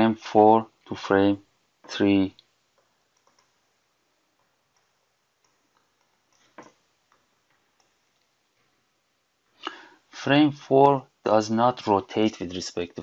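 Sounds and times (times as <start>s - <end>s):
stylus clicking on tablet: 2.4s - 3.6s, 4.4s - 8.3s.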